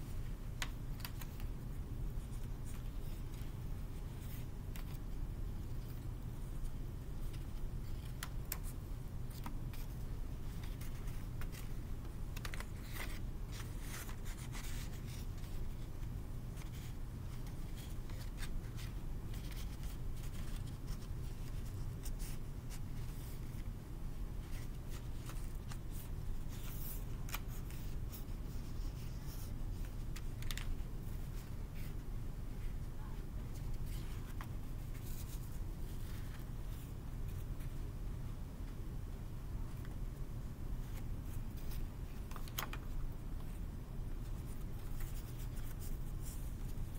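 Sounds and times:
steady low hum: 0.0 - 46.9
paper rustling and crackling: 0.5 - 15.9, 16.5 - 23.7, 24.4 - 31.9, 40.8 - 46.9.

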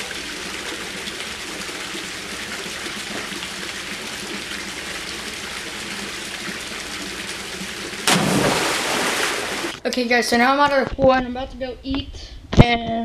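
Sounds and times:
water pouring into pool: 0.0 - 9.8
person plunging into pool: 8.0 - 9.8.

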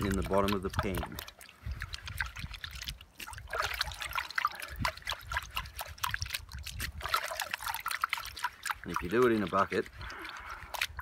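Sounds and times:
water sloshing in gold pan: 0.0 - 11.0.

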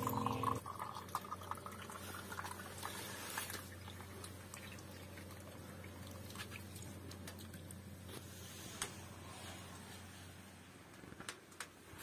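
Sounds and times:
tea trickling into glass: 0.0 - 3.8.

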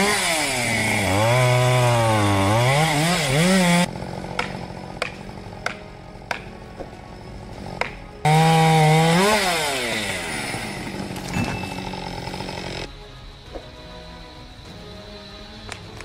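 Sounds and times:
chainsaw engine revving: 0.0 - 5.4, 7.6 - 12.9.

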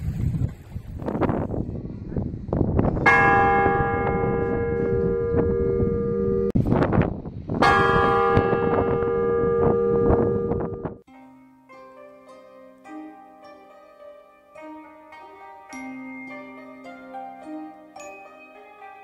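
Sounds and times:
wind buffeting microphone: 0.0 - 11.0
large bell ringing: 3.0 - 6.6, 7.6 - 19.0
soft plucked-string music: 11.1 - 19.0.

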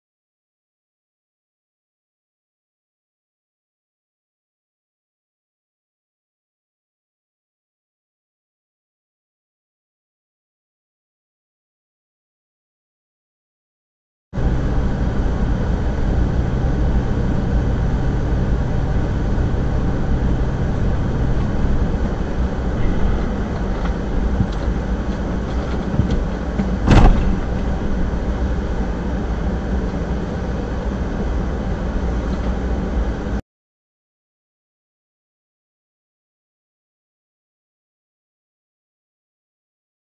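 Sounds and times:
vehicle rumble: 14.4 - 33.4
sharp bang: 26.6 - 27.7.

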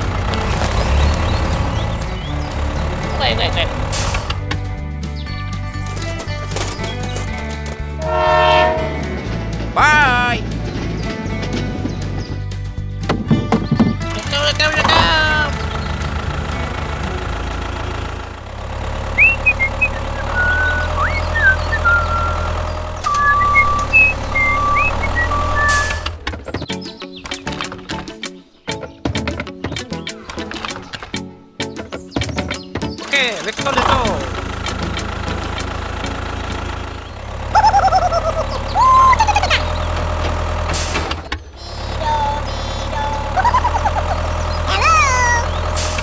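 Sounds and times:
tractor engine running: 0.0 - 46.0
high chirps and whistles: 19.2 - 26.1
warbling high-pitched calls: 37.6 - 39.6.

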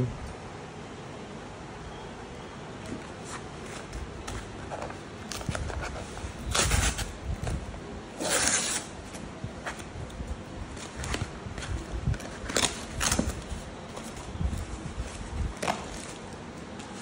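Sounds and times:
paper tearing: 8.1 - 9.0
paper crinkling and rustling: 10.6 - 17.0.

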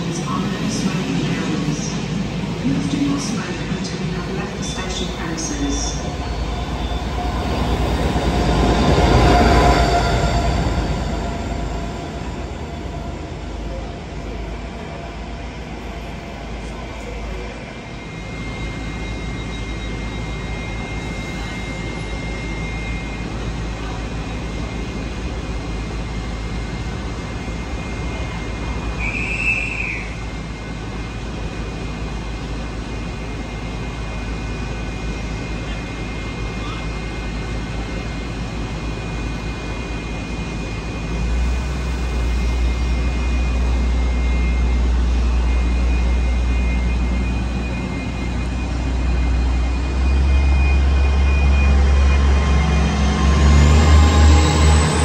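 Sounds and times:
train engines rumbling: 0.0 - 55.0
brief high squeal: 29.0 - 30.2.

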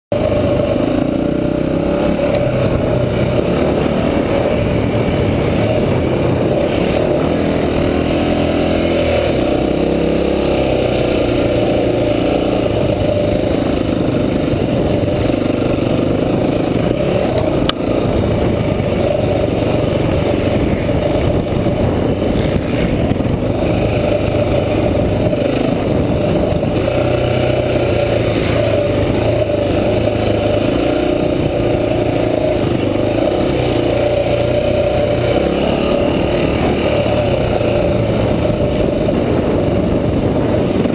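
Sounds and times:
dirt bike engine revving: 0.1 - 40.9.

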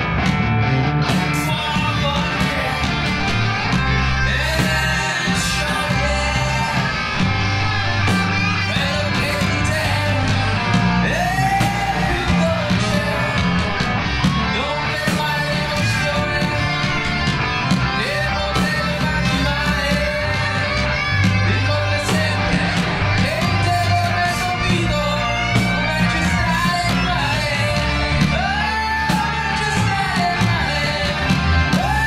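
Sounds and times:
bending melodic guitar line: 0.0 - 32.0
rock band playing: 0.0 - 32.0.

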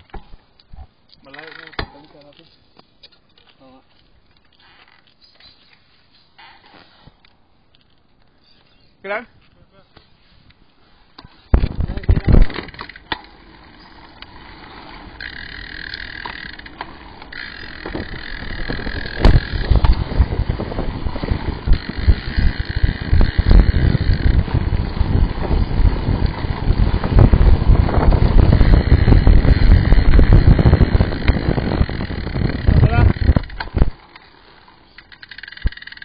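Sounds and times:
bike tyres rumbling on road: 10.9 - 36.0
wind buffeting microphone: 11.5 - 12.7, 17.0 - 34.0.

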